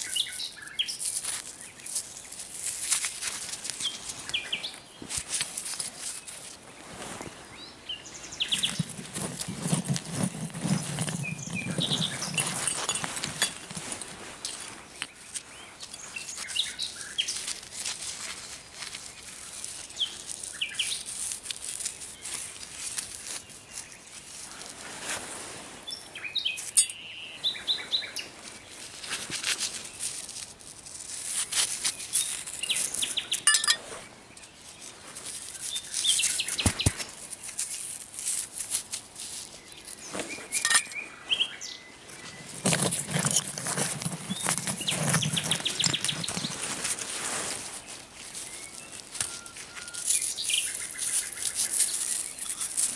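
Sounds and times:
songbird singing: 0:00.0 - 0:02.5, 0:03.7 - 0:05.1, 0:05.9 - 0:17.6, 0:19.0 - 0:21.2, 0:25.6 - 0:30.2, 0:31.8 - 0:37.8, 0:39.4 - 0:52.9
scraping of soil: 0:00.0 - 0:27.0, 0:28.3 - 0:52.9
scrap metal clinking: 0:08.6 - 0:14.8, 0:26.6 - 0:27.1, 0:33.4 - 0:34.0, 0:40.5 - 0:41.0, 0:42.1 - 0:47.3.

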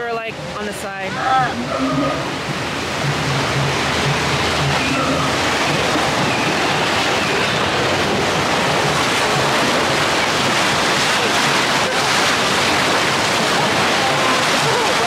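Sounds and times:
loud rushing noise: 0:01.3 - 0:15.0
faint voices: 0:11.0 - 0:15.0.

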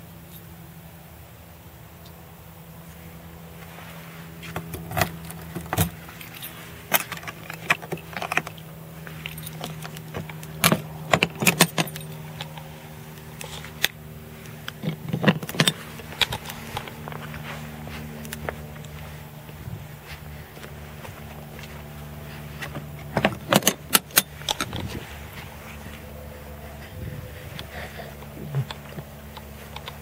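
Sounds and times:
steady low hum: 0:00.0 - 0:30.0
metal objects clinking and jangling: 0:05.0 - 0:19.0.

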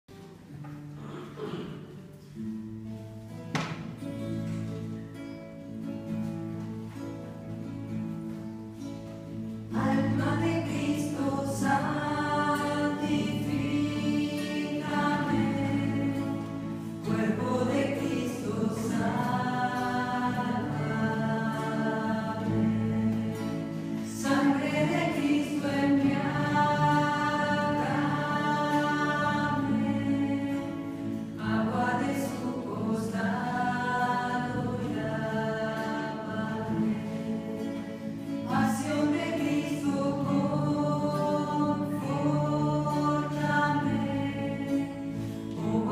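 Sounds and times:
strummed acoustic guitars: 0:00.1 - 0:45.9
group singing in unison: 0:09.7 - 0:45.9.

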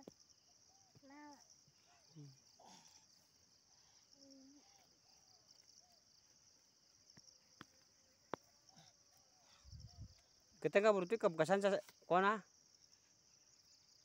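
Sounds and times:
insect chirring: 0:00.0 - 0:14.0.

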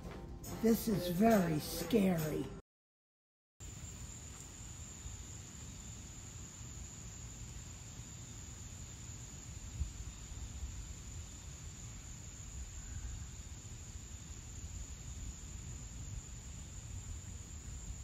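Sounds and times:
insects droning: 0:03.6 - 0:18.0.

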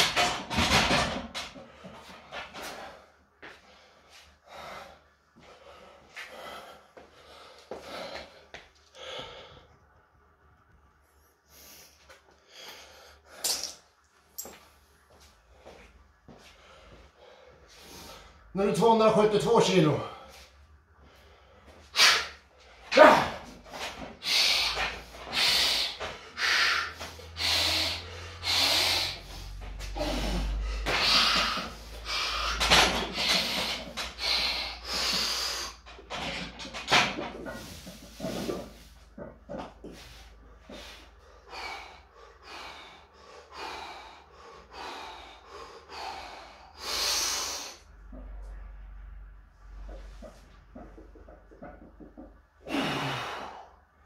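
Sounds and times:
person breathing hard: 0:01.8 - 0:10.0, 0:24.2 - 0:35.9, 0:39.7 - 0:48.0, 0:52.6 - 0:54.0.

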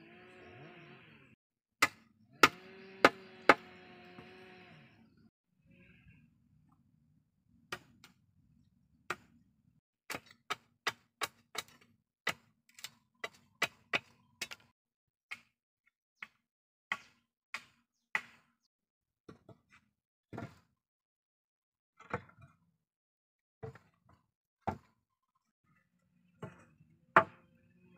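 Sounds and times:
machete chopping bamboo: 0:01.8 - 0:03.7, 0:10.1 - 0:14.7, 0:16.2 - 0:18.5.

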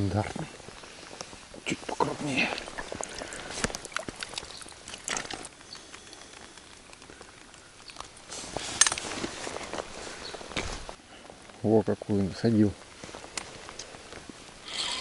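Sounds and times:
handling clicks and rustles: 0:00.0 - 0:11.6.

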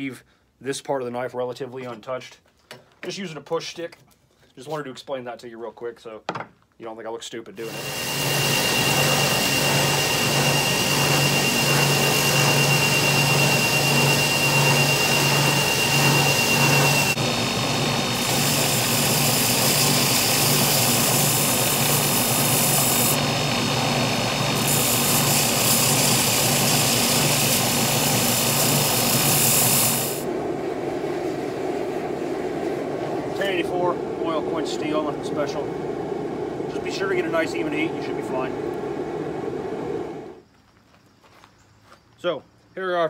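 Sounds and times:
belt grinder grinding metal: 0:07.6 - 0:30.2.

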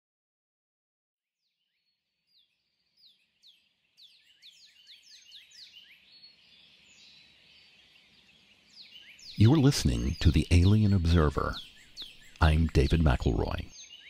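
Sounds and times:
birds chirping: 0:01.4 - 0:14.0.

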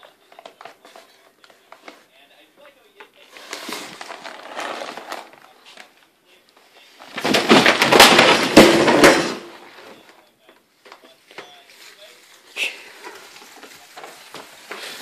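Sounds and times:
plastic bag crinkling: 0:03.4 - 0:05.9
books clattering onto floor: 0:07.0 - 0:10.0.

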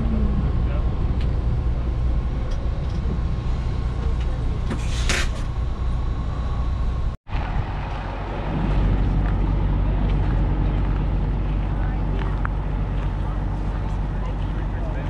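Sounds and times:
bus engine rumbling: 0:00.0 - 0:15.0.

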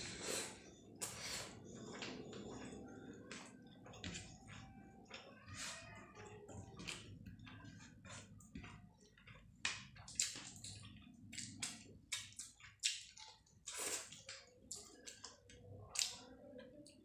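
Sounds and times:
wet chewing and mouth smacks: 0:06.7 - 0:16.2.

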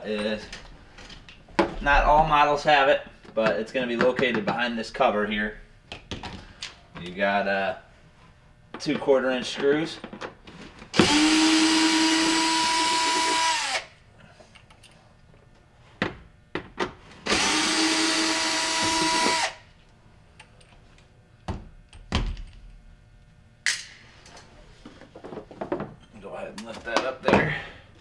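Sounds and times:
power drill whirring: 0:11.0 - 0:13.9, 0:17.2 - 0:19.6.

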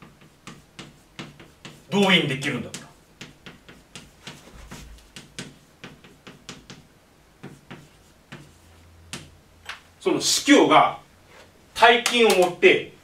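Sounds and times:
chalk writing on a blackboard: 0:00.0 - 0:09.3.

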